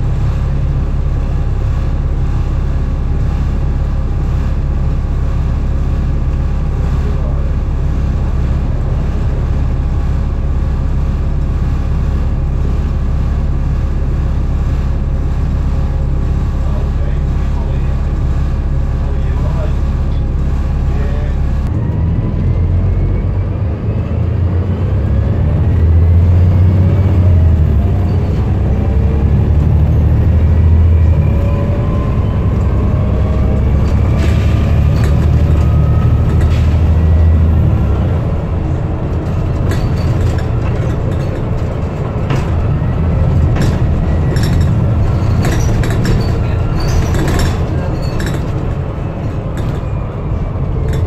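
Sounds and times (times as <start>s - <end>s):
bus diesel engine drone and whine: 0.0s - 51.0s
bodywork rattles and clicks: 32.6s - 37.0s, 38.8s - 51.0s.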